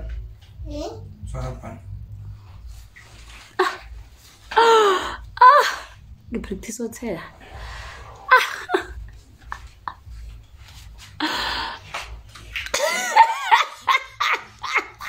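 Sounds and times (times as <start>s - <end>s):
woman laughing: 3.6s - 3.9s, 4.6s - 5.9s, 8.3s - 10.1s, 12.7s - 15.0s.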